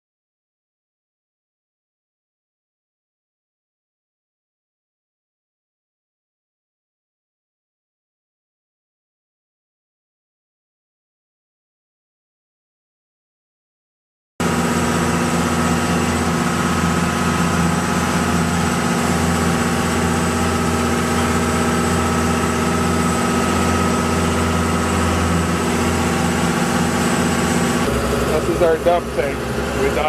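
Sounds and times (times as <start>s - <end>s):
boat engine drone: 14.4s - 30.0s.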